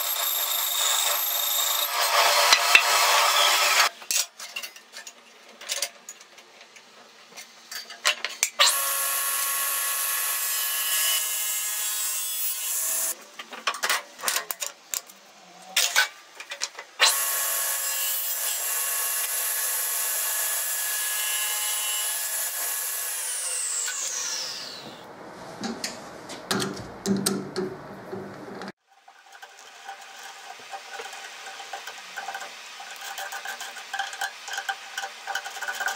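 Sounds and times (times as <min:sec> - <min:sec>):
table saw cutting wood: 0:00.0 - 0:03.9, 0:08.6 - 0:13.2, 0:17.0 - 0:25.1.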